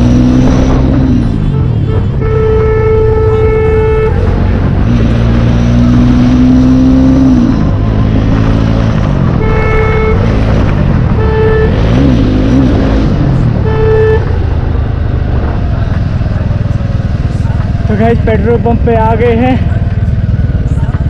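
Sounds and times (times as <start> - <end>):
horn beeps: 0.0 - 5.1, 9.4 - 14.7
motorcycle engine without exhaust: 0.0 - 21.0.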